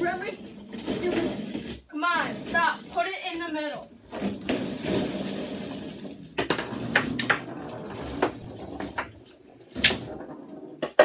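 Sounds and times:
foosball rods rattling: 0.0s - 11.0s
sharp knocks of foosball figures: 4.1s - 11.0s.

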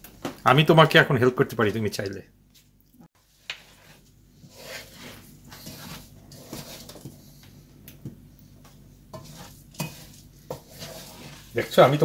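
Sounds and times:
wooden spoon scraping rice in pot: 3.2s - 7.6s, 8.5s - 12.0s
faint sizzle: 3.2s - 12.0s.

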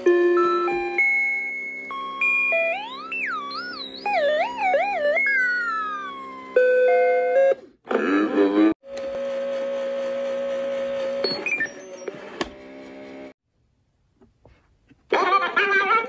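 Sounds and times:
glitchy synth beeping tones: 1.9s - 7.4s.

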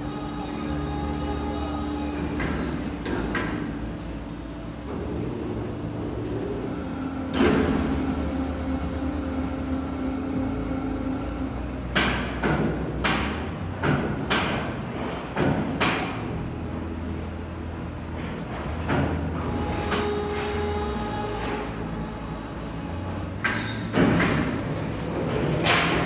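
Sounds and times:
overhead crane hum: 0.0s - 26.0s
metal chains clanking on steel: 2.2s - 6.6s, 18.2s - 21.9s, 23.4s - 26.0s.

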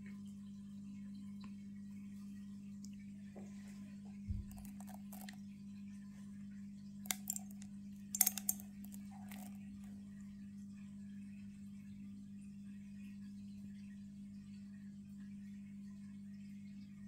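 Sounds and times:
steady low hum: 0.0s - 17.0s
seeds clicking onto pebbles: 4.5s - 5.4s, 7.1s - 9.6s.

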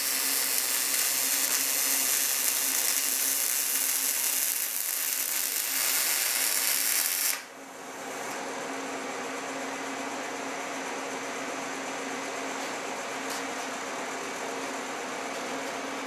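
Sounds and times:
welding arc sizzling: 0.0s - 7.5s.

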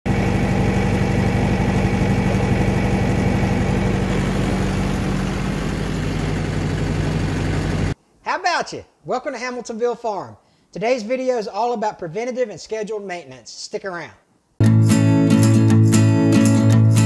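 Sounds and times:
tractor diesel engine droning: 0.1s - 8.0s.

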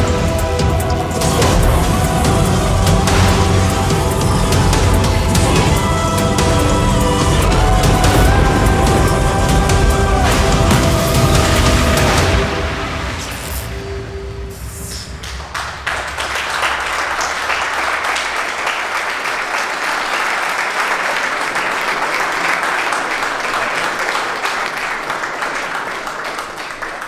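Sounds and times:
audience applauding: 0.0s - 13.0s, 15.2s - 27.0s
low rumbling show music: 0.0s - 17.4s.

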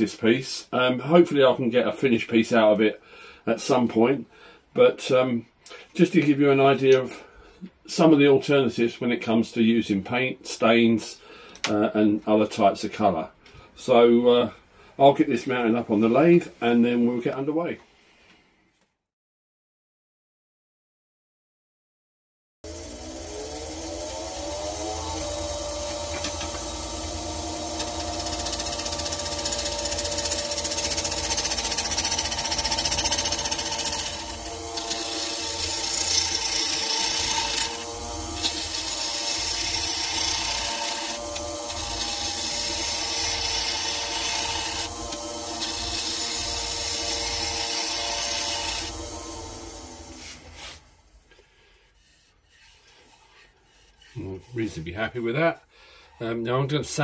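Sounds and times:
turning tool cutting wood: 22.6s - 55.5s
wood lathe motor whine: 22.7s - 51.3s
shavings hissing: 22.7s - 56.4s.

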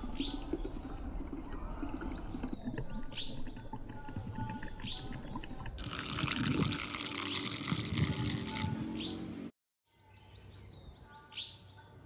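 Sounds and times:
liquid pouring into a cup: 0.0s - 8.8s.

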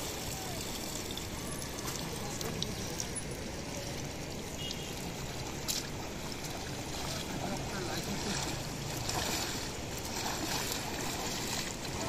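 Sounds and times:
water pouring off a net: 8.0s - 12.0s.

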